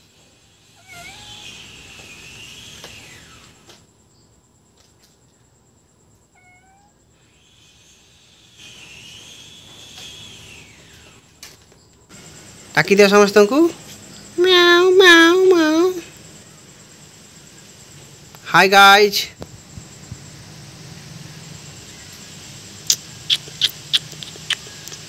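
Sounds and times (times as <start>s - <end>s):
cat meowing: 0.8s - 1.7s, 6.3s - 7.0s.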